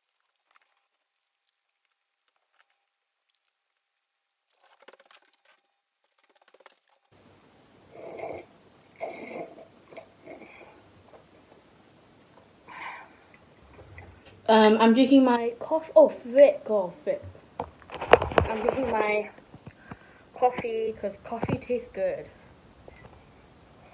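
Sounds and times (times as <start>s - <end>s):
person slurping coffee: 7.9s - 10.8s.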